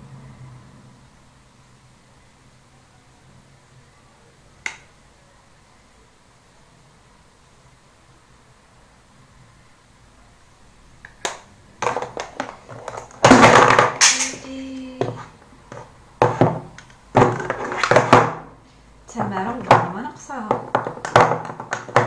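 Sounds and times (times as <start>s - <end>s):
woman speaking: 14.0s - 15.3s, 19.1s - 20.7s.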